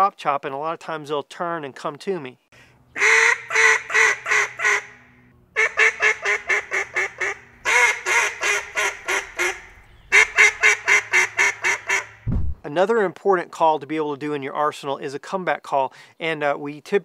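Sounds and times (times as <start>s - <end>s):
duck call quacks: 3.0s - 12.2s.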